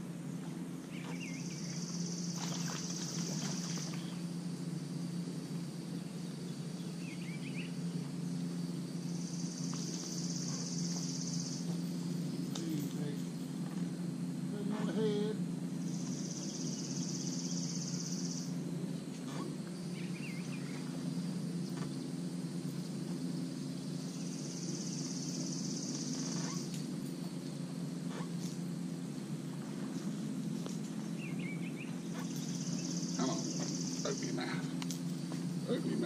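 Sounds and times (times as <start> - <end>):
insect buzzing: 0.0 - 36.0
steady low hum: 0.0 - 36.0
bird chirps: 0.4 - 4.3, 6.0 - 8.4, 15.8 - 18.6, 19.3 - 21.9, 23.7 - 26.7, 31.0 - 34.7.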